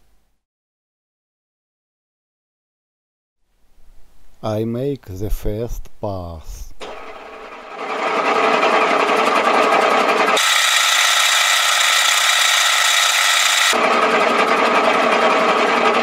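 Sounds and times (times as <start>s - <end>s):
cutter facing workpiece: 6.8s - 16.0s
milling machine gear whine: 7.0s - 16.0s.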